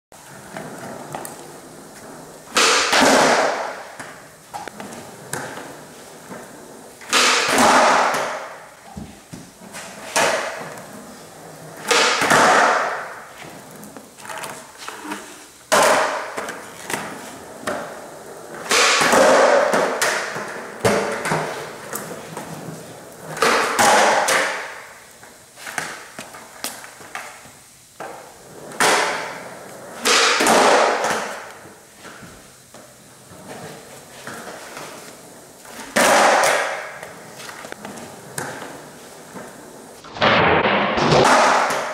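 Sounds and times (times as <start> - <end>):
skateboard wheels rolling on concrete: 0.1 - 41.9
skateboard pop or landing: 2.6 - 3.8, 7.1 - 8.5, 11.9 - 13.1, 18.6 - 21.5, 23.4 - 24.7, 30.0 - 31.5, 35.9 - 37.0, 40.0 - 41.9.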